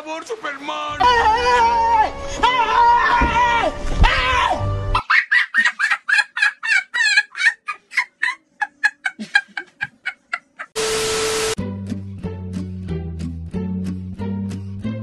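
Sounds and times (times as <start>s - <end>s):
steady hiss: 10.8s - 11.6s.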